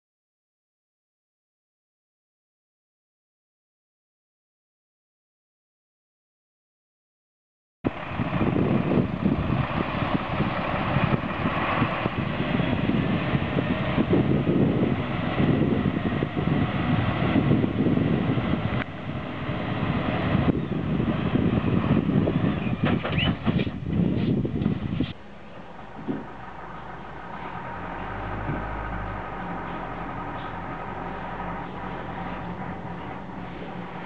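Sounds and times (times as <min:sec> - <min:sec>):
truck diesel engine running: 0:07.9 - 0:34.0.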